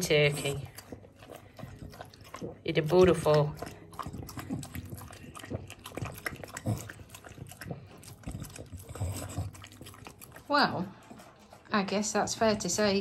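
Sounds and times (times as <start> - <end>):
dog chewing and gulping: 0.0 - 13.0.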